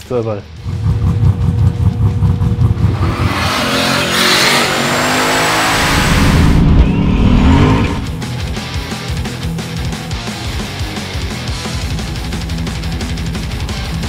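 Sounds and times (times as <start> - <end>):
turbocharged engine revving: 0.6 - 8.2.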